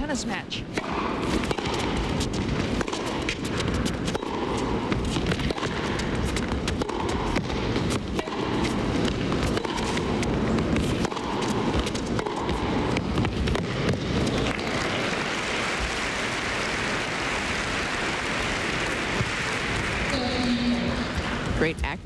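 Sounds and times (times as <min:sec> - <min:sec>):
tennis racket hitting ball: 0:00.7 - 0:22.0
crowd applauding: 0:14.4 - 0:21.6.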